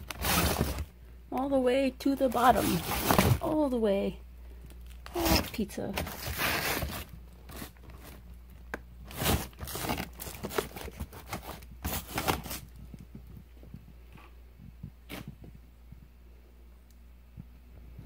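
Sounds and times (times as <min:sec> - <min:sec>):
plastic bags and boxes rustling: 0:00.0 - 0:03.9, 0:04.6 - 0:14.4
low steady hum: 0:00.0 - 0:18.0.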